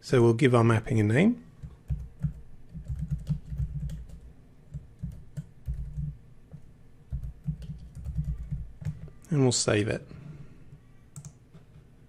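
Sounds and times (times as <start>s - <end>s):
typing on computer keyboard: 1.6s - 6.2s, 7.1s - 9.2s, 11.2s - 11.4s.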